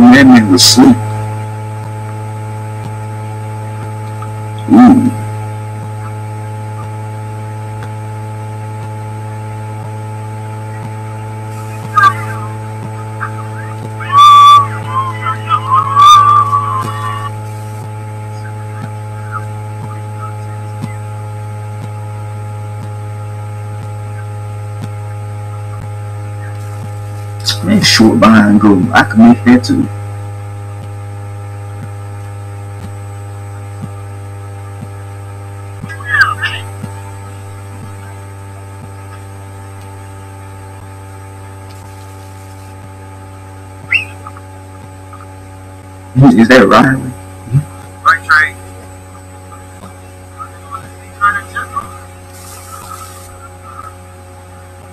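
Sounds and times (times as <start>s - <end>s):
electrical mains hum: 0.0s - 54.9s
wavering whistle-like tone: 11.5s - 17.7s, 43.8s - 44.4s.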